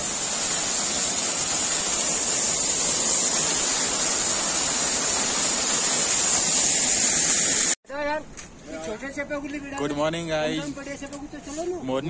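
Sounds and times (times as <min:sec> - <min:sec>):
waterfall splashing onto stone: 0:00.0 - 0:07.8.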